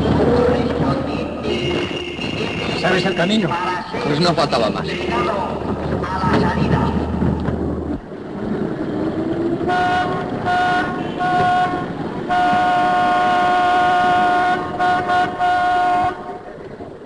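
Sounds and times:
background noise: 0.0 - 17.0
horn toots and blast: 9.6 - 16.2.

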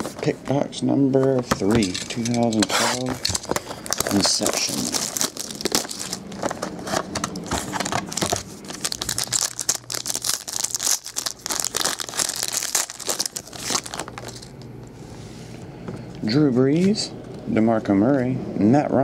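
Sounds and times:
plastic wrap crinkling: 1.5 - 14.8
foil pack tearing: 1.8 - 14.6.

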